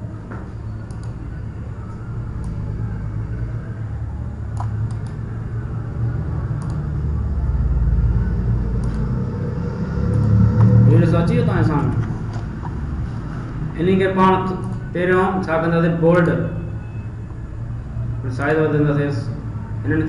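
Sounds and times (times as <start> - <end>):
steady low rumble: 0.0 - 16.0.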